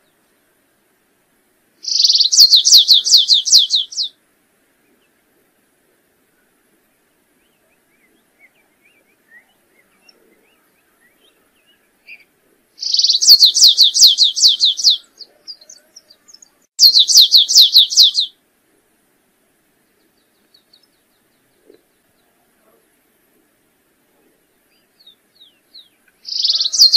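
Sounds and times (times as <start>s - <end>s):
finch singing high repeated notes: 1.8s - 4.1s, 7.5s - 18.3s, 24.7s - 26.9s
faint bird chips: 24.8s - 26.9s.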